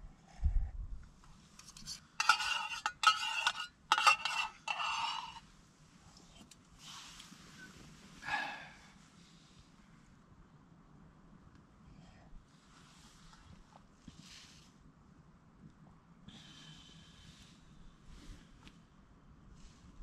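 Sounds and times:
metal spoon scraping in metal pot: 1.6s - 5.4s.

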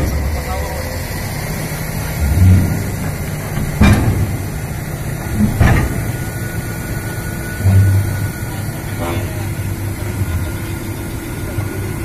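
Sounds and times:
excavator diesel engine running: 0.0s - 12.0s
heavy clunks: 2.0s - 9.3s.

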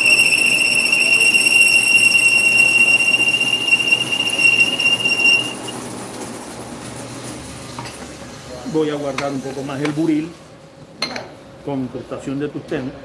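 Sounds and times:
high-pitched cutting squeal: 0.0s - 5.8s
lathe running: 0.0s - 6.6s.

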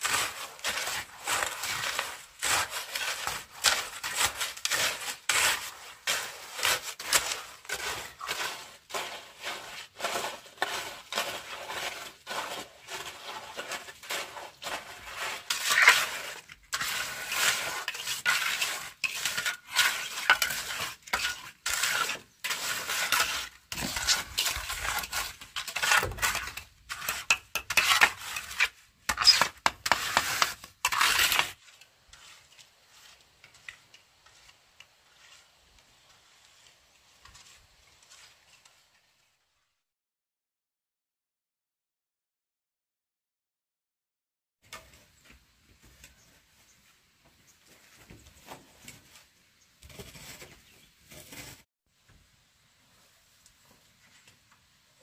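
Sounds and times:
hoe scraping wet concrete: 0.0s - 39.1s, 49.8s - 51.7s.

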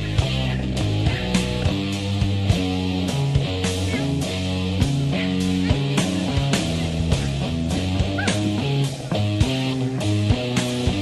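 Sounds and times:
rock music with guitar and drums: 0.0s - 11.0s.

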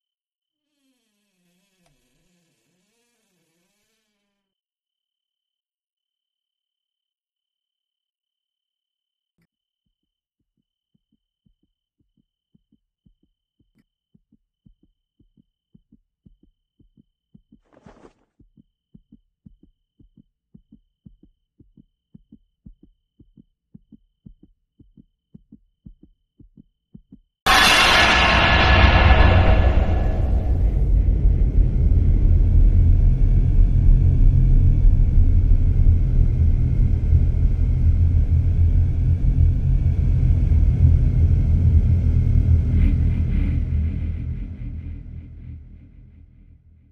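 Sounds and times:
heartbeat thumps: 10.4s - 27.3s.

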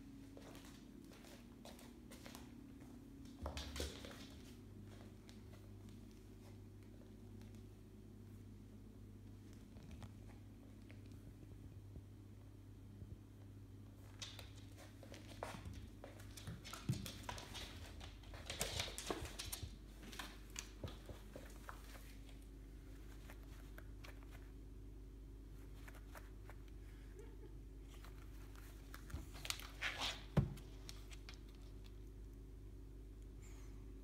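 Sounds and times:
cat paws scuffling on floor: 0.3s - 8.5s, 13.9s - 24.6s, 25.5s - 26.8s, 27.9s - 32.2s.

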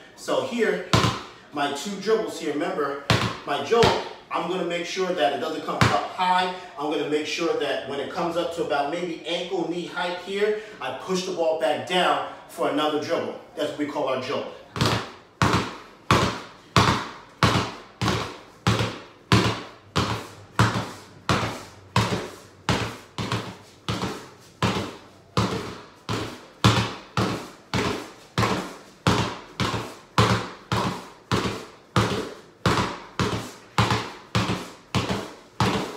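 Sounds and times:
bounce echo in room: 0.0s - 35.9s
basketball bouncing on floor: 0.9s - 1.3s, 3.0s - 4.1s, 5.7s - 6.1s, 14.7s - 35.9s.

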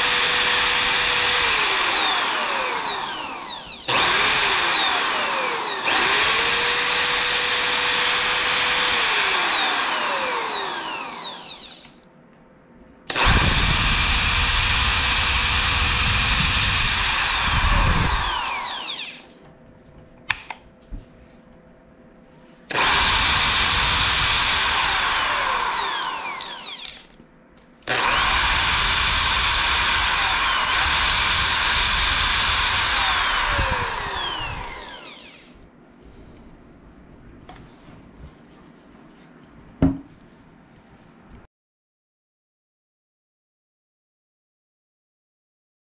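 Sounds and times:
impact drill motor whine: 0.0s - 12.0s, 13.1s - 19.3s, 22.7s - 27.2s, 27.9s - 35.6s.

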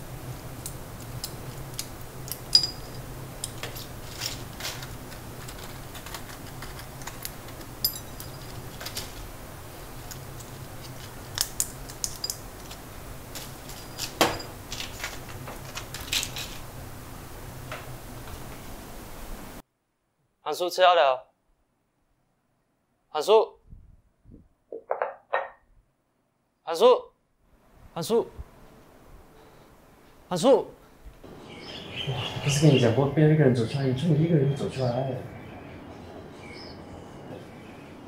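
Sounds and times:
steady low hum: 0.0s - 19.6s
dishes and glass clinking: 2.4s - 4.4s, 7.8s - 8.9s, 13.7s - 14.9s, 24.8s - 25.6s.

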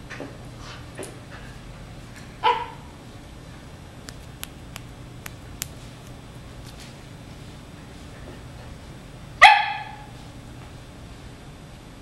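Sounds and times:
puppy barking: 2.4s - 2.9s, 9.4s - 10.1s.

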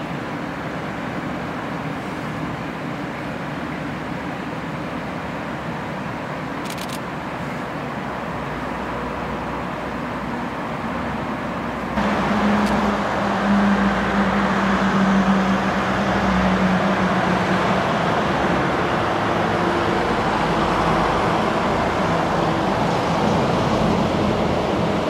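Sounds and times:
train rumbling past: 7.6s - 25.0s.

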